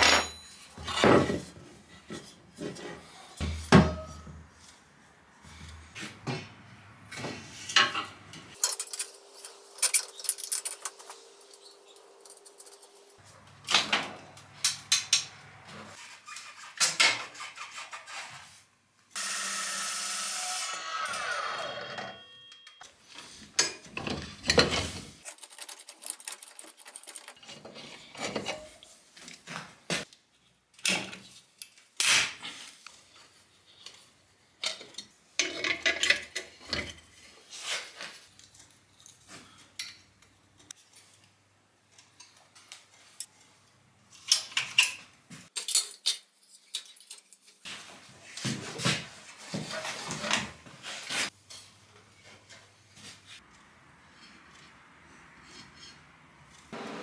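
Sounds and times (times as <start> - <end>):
metal tools clinking: 0.0 - 1.2, 7.8 - 13.2.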